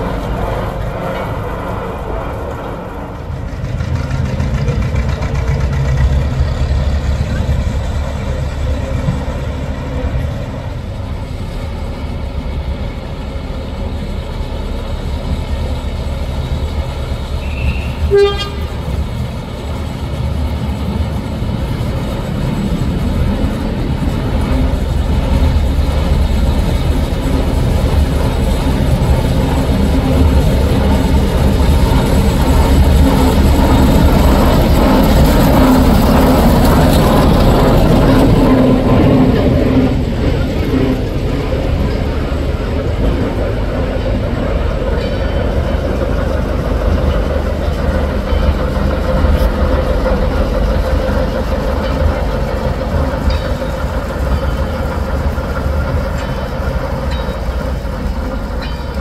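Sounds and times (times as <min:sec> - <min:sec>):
diesel locomotive engine running: 0:00.0 - 0:59.0
locomotive horn toot: 0:17.4 - 0:18.9.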